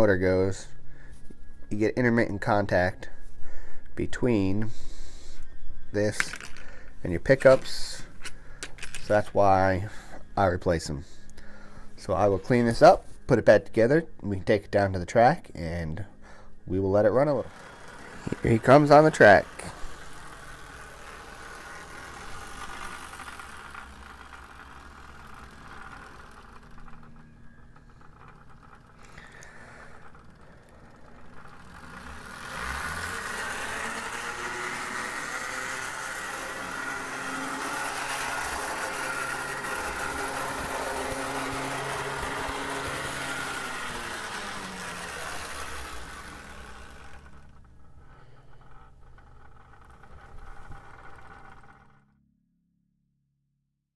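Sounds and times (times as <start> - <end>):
model locomotive motor whirring: 4.6 - 14.0, 15.2 - 52.1
wheels rolling on rails: 16.8 - 52.1.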